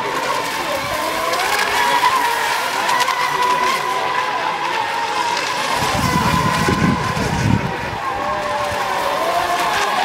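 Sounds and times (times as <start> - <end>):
electric racing boats whining: 0.0 - 10.0.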